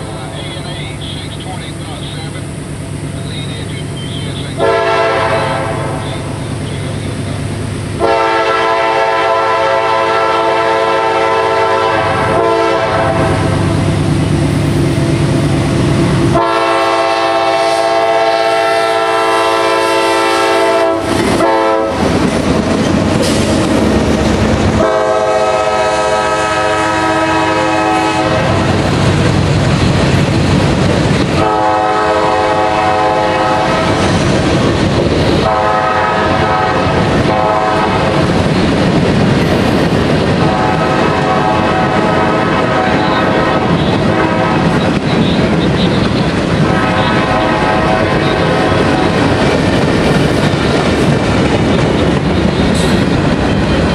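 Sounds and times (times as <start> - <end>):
locomotive engine rumble: 0.0 - 53.9
locomotive horn: 4.3 - 6.3, 8.0 - 13.7, 16.3 - 22.2, 24.6 - 28.8, 31.4 - 34.2, 35.4 - 38.3, 40.4 - 49.8
train wheels clattering on rails: 19.9 - 26.3, 28.2 - 53.9.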